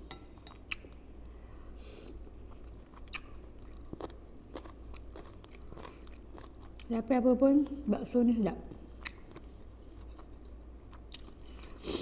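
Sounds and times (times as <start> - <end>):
close chewing: 2.5 - 6.9.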